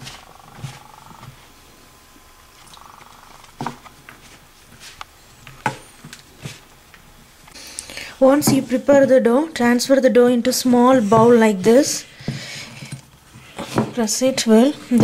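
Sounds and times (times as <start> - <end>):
dough squishing by hand: 0.0 - 1.5, 3.4 - 6.8.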